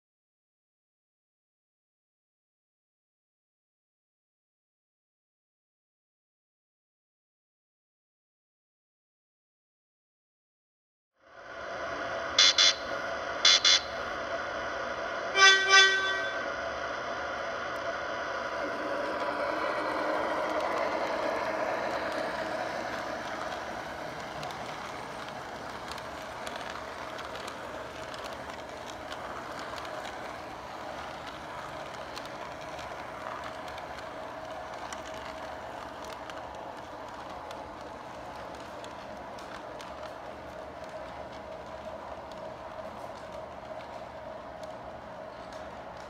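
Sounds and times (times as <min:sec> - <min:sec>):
model train rumbling on track: 0:11.4 - 0:46.0.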